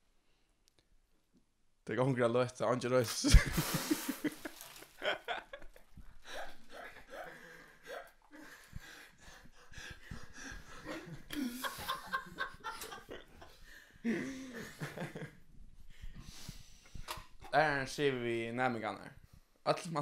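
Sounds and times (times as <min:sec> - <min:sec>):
young men stifled laughing: 0:03.2 - 0:15.5
breathing: 0:07.1 - 0:12.0, 0:13.5 - 0:14.7, 0:15.8 - 0:17.1.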